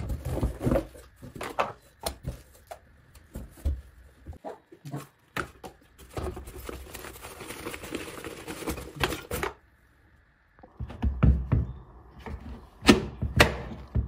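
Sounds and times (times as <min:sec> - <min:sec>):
packaging rustling and scraping: 0:00.0 - 0:04.0, 0:05.6 - 0:09.6.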